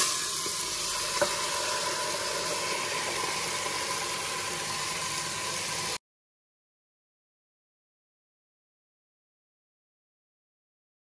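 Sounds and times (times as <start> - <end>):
beans sizzling in hot oil: 0.0 - 6.0.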